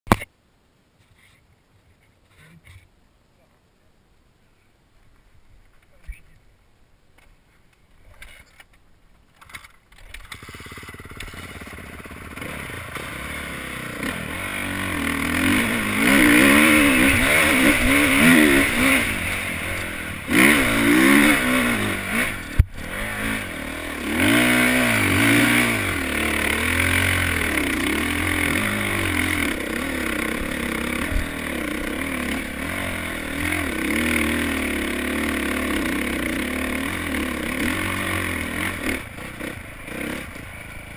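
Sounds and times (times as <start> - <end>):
dirt bike engine revving: 10.2 - 40.9.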